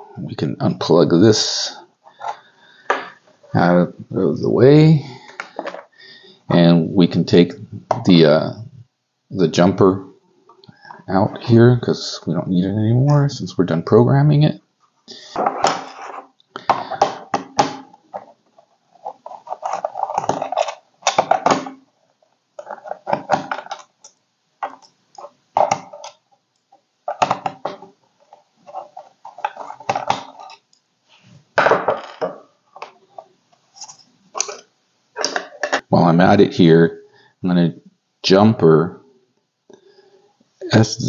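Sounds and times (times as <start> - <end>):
screws and plastic clattering: 19.0 - 21.7.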